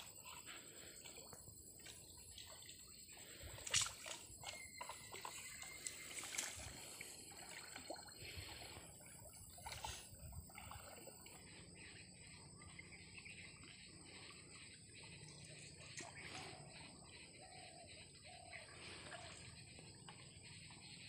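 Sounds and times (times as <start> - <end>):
river water sloshing: 0.0 - 11.8.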